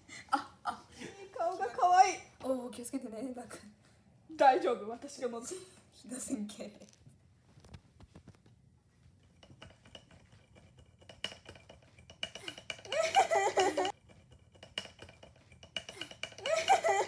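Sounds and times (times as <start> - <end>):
person giggling: 12.8 - 13.9, 16.0 - 17.0.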